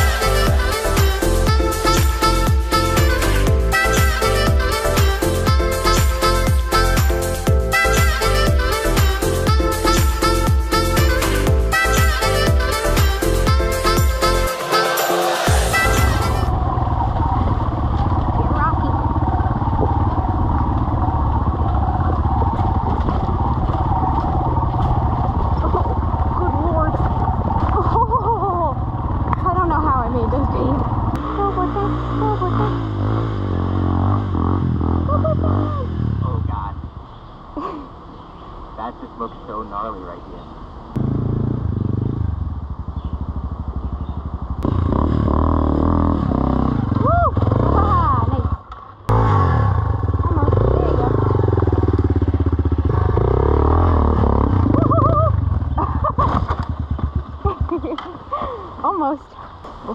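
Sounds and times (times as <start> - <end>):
dirt bike engine running: 15.4 - 37.0, 41.0 - 59.0.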